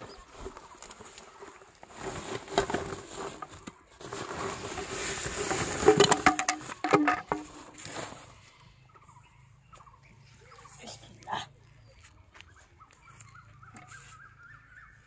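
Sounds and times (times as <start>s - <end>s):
plastic sack rustling: 0.0s - 8.4s
bamboo tubes knocking together: 5.4s - 7.8s.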